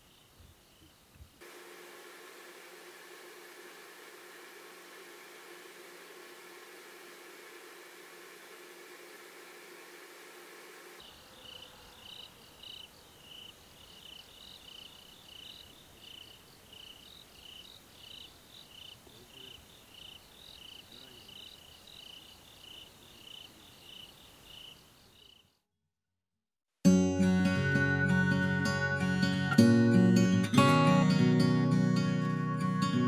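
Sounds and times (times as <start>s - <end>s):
cricket chirping: 0.0s - 1.4s, 7.6s - 25.6s.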